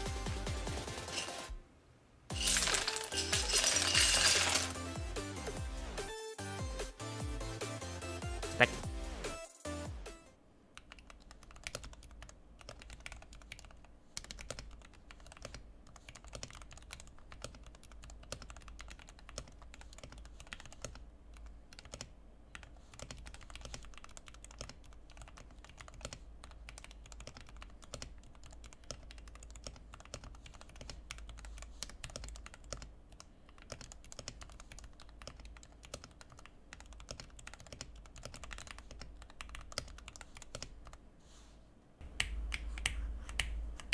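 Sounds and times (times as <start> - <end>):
mechanical keyboard typing: 10.8 - 41.0.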